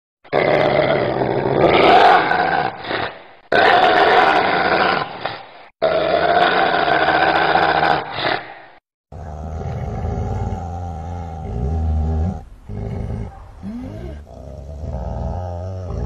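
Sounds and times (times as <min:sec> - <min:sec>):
dog growling: 0:09.1 - 0:16.0.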